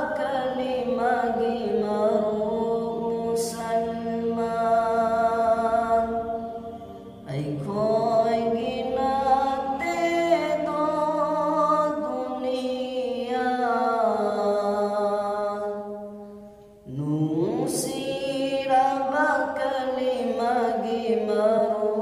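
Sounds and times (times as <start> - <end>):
man singing devotional song: 7.2 - 15.8, 16.8 - 22.0.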